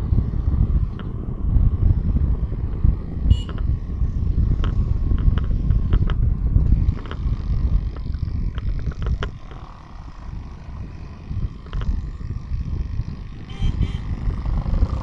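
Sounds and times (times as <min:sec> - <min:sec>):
road noise from moving vehicle: 0:00.0 - 0:15.0
wind buffeting microphone: 0:00.0 - 0:15.0.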